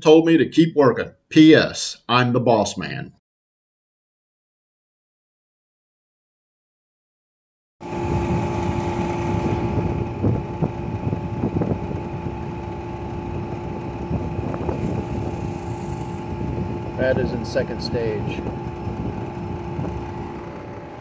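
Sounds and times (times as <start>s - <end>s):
air conditioner unit humming: 7.9s - 21.0s.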